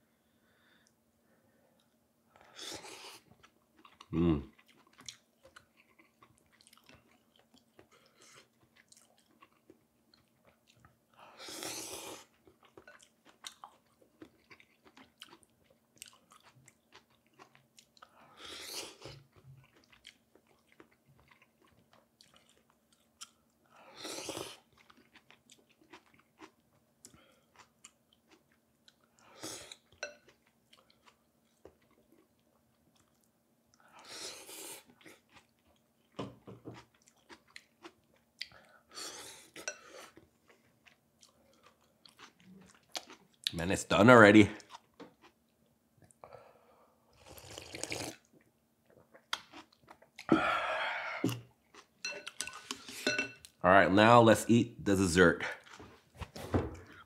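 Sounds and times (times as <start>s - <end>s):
person chewing: 1.8s - 43.6s, 44.5s - 45.4s, 47.1s - 53.6s, 55.4s - 56.1s
loud slurp: 47.2s - 48.2s.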